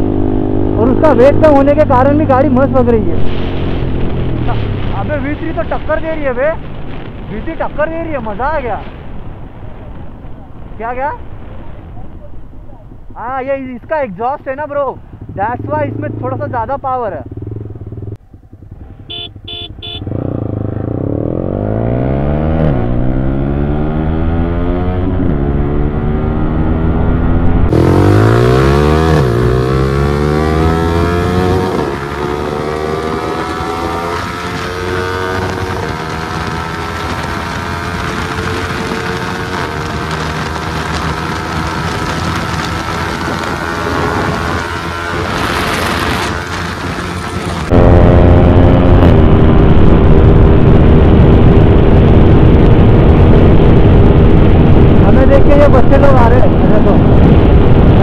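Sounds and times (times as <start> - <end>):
motorcycle engine revving high: 0.0 - 6.5, 14.5 - 58.0
wind rush on microphone: 20.2 - 58.0.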